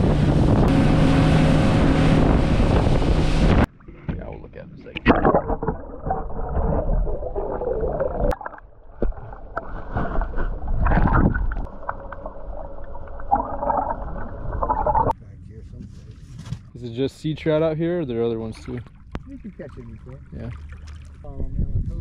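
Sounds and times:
water rushing over camera underwater: 0:00.0 - 0:04.2, 0:04.8 - 0:15.2.

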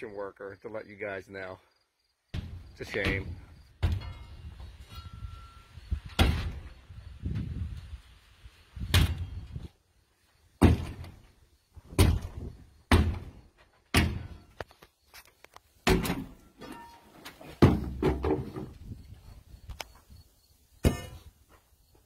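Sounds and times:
digging bar thudding: 0:02.4 - 0:04.3, 0:06.1 - 0:06.8, 0:10.6 - 0:11.2, 0:11.9 - 0:14.6, 0:15.8 - 0:18.8, 0:20.8 - 0:21.3
metallic ring: 0:04.0 - 0:05.8.

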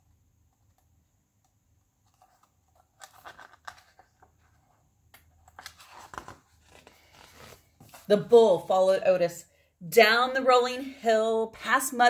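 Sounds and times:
paper pages rustling and turning: 0:02.0 - 0:08.3.

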